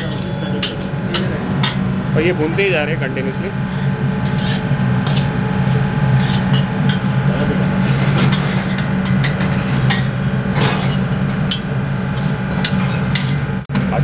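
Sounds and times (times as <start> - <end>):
low kitchen hum: 0.0 - 14.0
steel spatula scraping a pan: 3.6 - 13.5.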